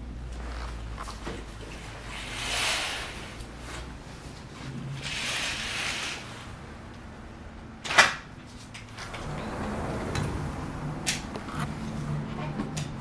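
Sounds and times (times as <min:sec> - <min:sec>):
curtains swishing along rail: 0:00.5 - 0:06.6.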